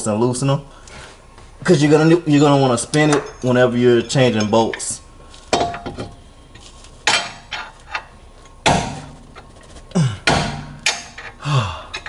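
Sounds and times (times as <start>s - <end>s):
wrench clanking on steel bolts: 1.7s - 6.2s, 7.0s - 9.5s, 10.2s - 12.0s
man grunting with effort: 9.9s - 10.5s, 11.4s - 12.0s.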